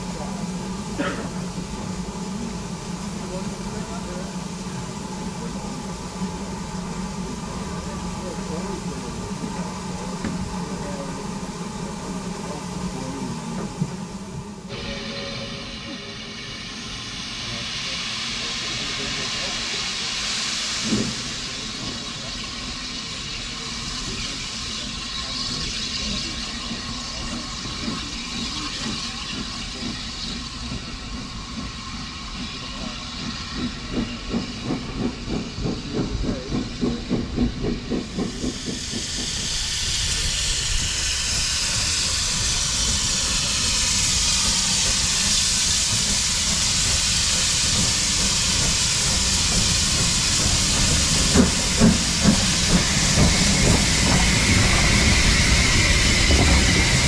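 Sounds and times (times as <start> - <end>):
heavy locomotive chuffs: 0.0 - 57.0
loud steam hiss: 0.0 - 57.0
steam locomotive exhaust beats: 0.0 - 57.0.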